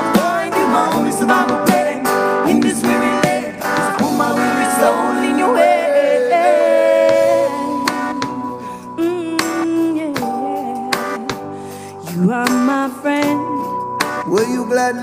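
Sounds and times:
strummed acoustic guitar: 0:00.0 - 0:05.8
worship band music: 0:00.0 - 0:15.0.

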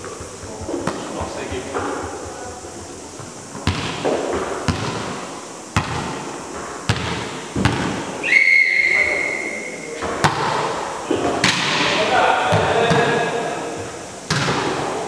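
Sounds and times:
volleyball smacks echoing in gym: 0:00.0 - 0:02.4, 0:03.2 - 0:08.1, 0:10.0 - 0:13.6, 0:14.2 - 0:15.0
referee's whistle: 0:08.2 - 0:09.9.

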